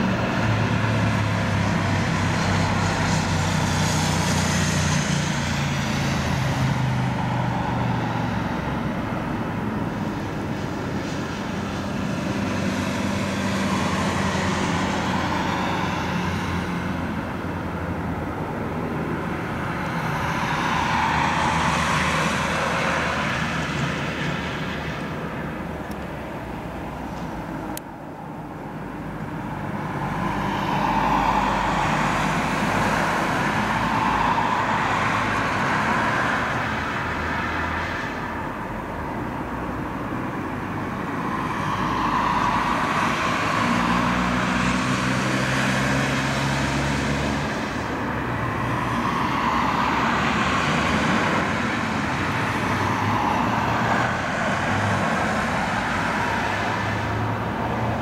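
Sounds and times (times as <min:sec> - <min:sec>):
jet aircraft flying past: 0:29.4 - 0:38.2.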